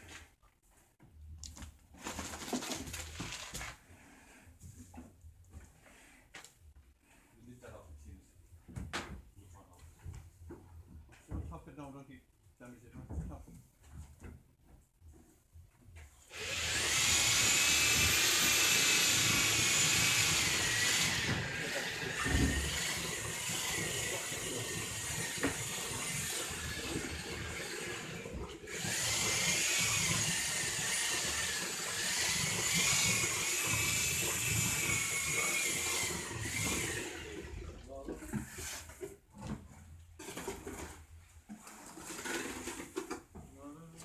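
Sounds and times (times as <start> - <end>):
electric motor whining: 16.4 - 37.6.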